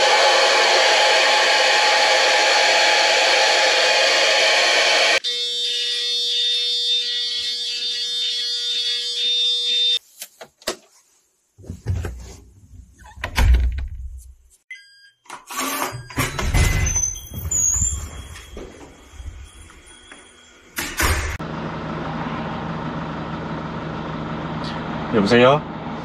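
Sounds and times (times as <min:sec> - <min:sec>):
hair dryer blowing: 0:00.0 - 0:05.2.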